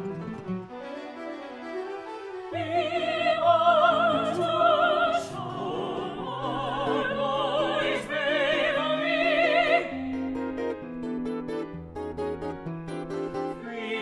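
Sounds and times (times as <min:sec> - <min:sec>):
orchestral accompaniment: 0:00.0 - 0:08.6
operatic singing: 0:02.4 - 0:10.6, 0:13.5 - 0:14.0.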